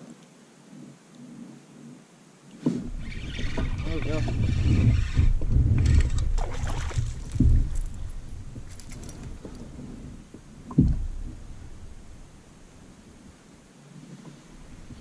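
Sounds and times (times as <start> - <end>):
quiet handling: 2.6 - 13.4
fish knocking against kayak: 2.8 - 9.8, 10.6 - 11.4
fish splash and thump: 5.4 - 9.4.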